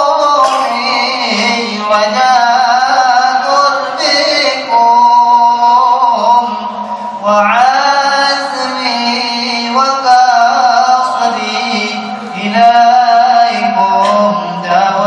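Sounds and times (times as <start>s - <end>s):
person singing held notes: 0.4s - 1.0s.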